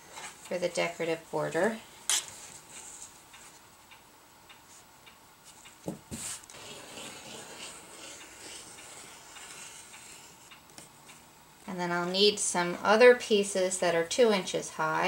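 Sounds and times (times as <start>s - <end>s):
ruler knocking on mat: 5.8s - 6.3s
rotary cutter through fabric: 6.5s - 10.4s.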